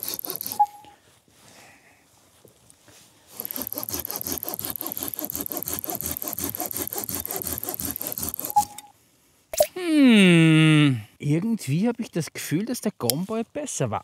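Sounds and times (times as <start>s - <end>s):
saw cutting through log: 0.0s - 0.8s, 3.3s - 8.8s
short beep: 0.6s - 0.9s, 8.6s - 8.9s.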